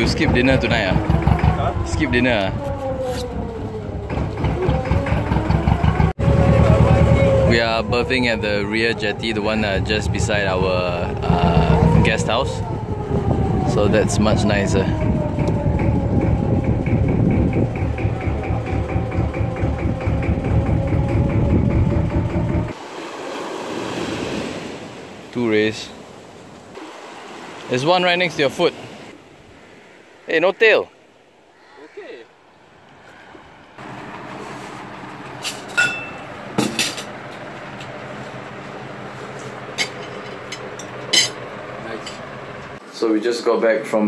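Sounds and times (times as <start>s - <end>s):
boat engine ticking: 0.0s - 22.8s
wind and water hiss: 22.8s - 35.9s
metal tongs clinking on plates: 35.8s - 36.2s.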